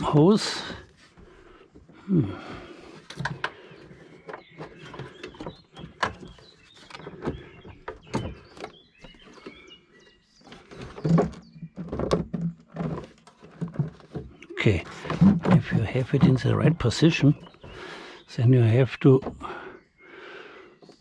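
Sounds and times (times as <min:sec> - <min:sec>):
plastic parts clicking and rattling: 0:03.0 - 0:08.8.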